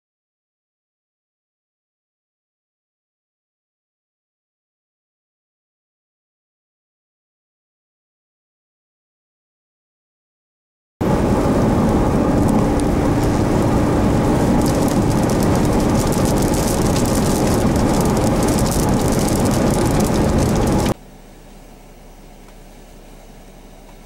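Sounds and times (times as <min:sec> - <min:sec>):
wind buffeting microphone: 0:11.0 - 0:21.0
raindrops ticking: 0:11.6 - 0:21.0.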